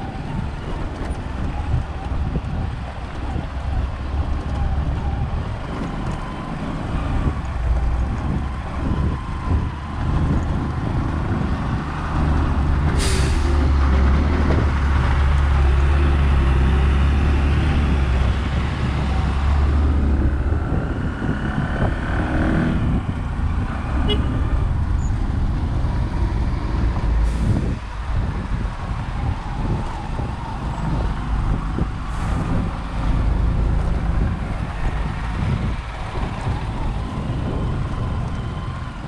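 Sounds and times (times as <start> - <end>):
diesel truck engines rumbling: 0.0 - 39.0.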